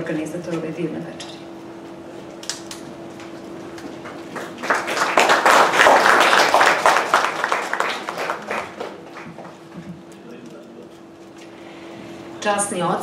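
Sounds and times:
audience applauding: 4.0 - 9.8.

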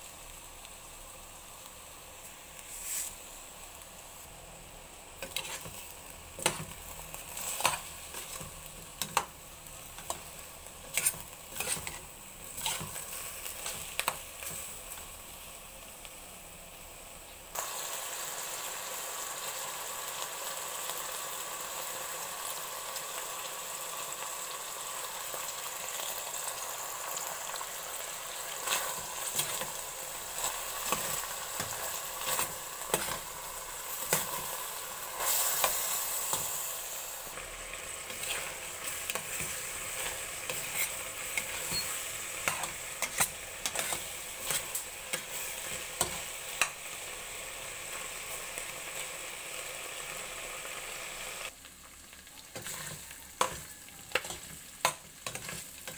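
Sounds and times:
meat frying in a pot: 0.0 - 55.9
spatula scraping a metal pot: 5.2 - 5.7, 10.9 - 12.0, 12.6 - 13.0, 39.3 - 44.8.

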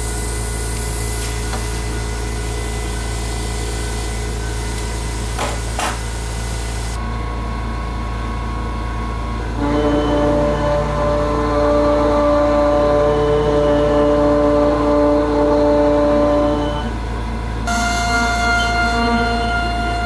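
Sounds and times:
high hiss: 0.0 - 7.0
cnc mill humming and whining: 0.0 - 20.0
steady tones: 0.0 - 20.0.

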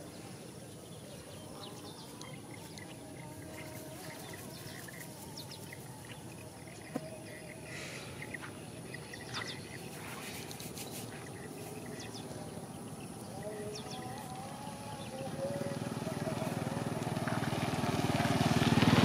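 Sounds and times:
bird chirps: 0.0 - 16.9
steady background hiss: 0.0 - 18.3.

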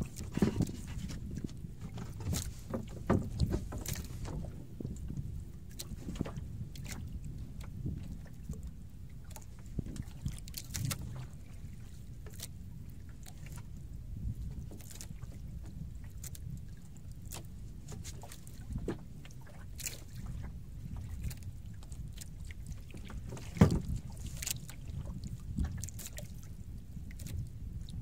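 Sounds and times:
clicks and knocks on boat: 0.0 - 28.0
water and wind rumble: 0.0 - 28.0.

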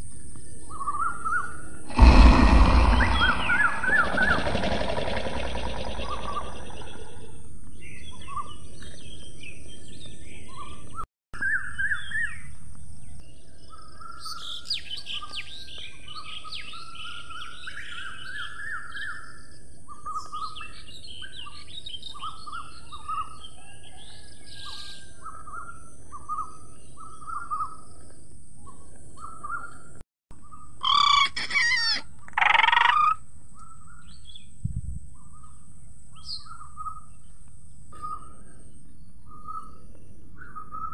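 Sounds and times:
small birds chirping: 0.1 - 11.0, 35.2 - 40.9.

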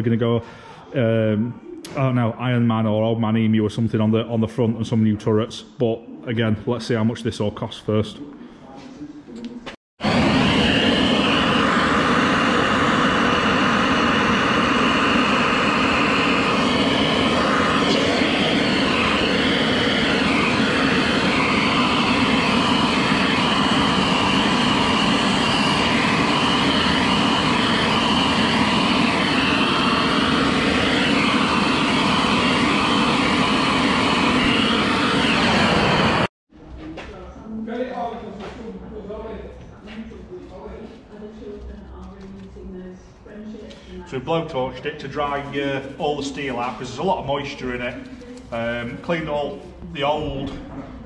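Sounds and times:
blowtorch roaring: 10.0 - 36.3.

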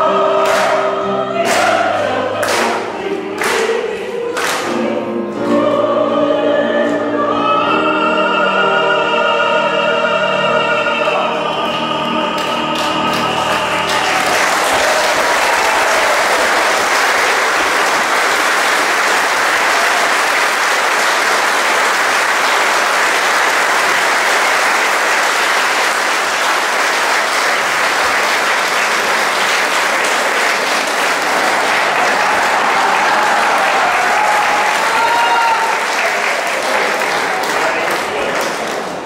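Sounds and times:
audience applauding: 12.4 - 39.0.

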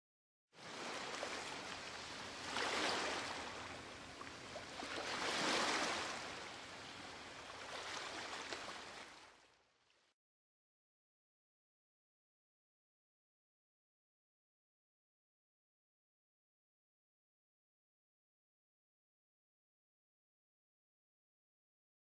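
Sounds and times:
sea surf washing in: 4.7 - 6.6.

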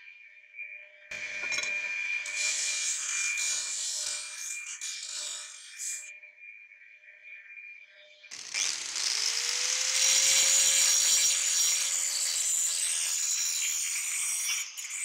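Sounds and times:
angle grinder grinding metal: 1.1 - 6.1, 8.3 - 15.0.

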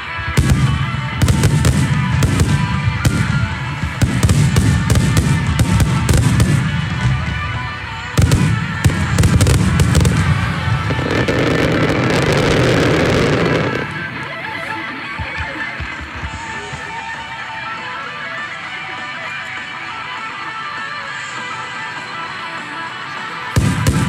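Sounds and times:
fireworks bursting: 0.0 - 17.2, 23.4 - 24.0.

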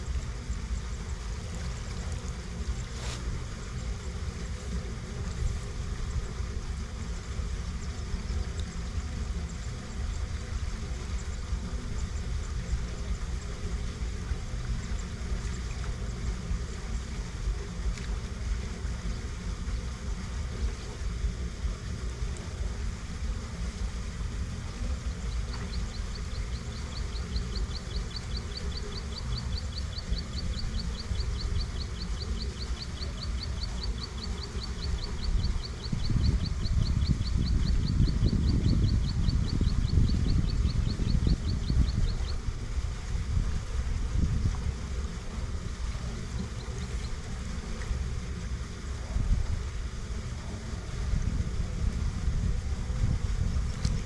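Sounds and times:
wind rumbling on microphone: 0.0 - 54.0
rapid high chirping: 25.3 - 42.4.

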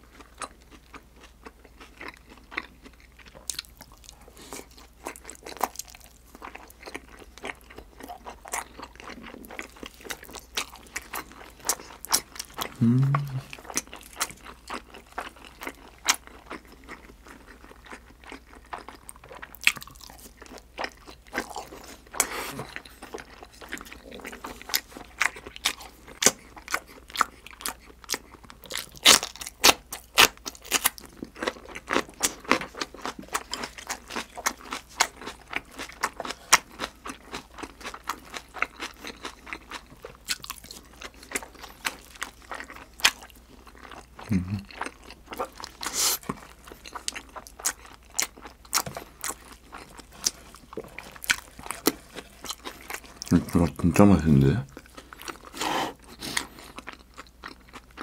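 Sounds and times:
close chewing and crunching: 0.0 - 58.0.

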